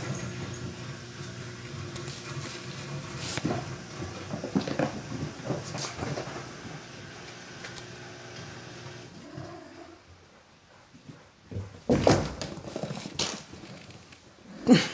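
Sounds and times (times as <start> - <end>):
kittens' paws scampering: 12.2 - 14.3.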